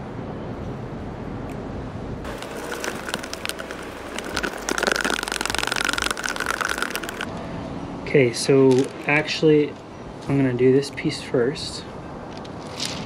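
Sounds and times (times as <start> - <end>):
crackling plastic rattle: 2.3 - 7.3
plastic containers clicking: 2.3 - 7.3.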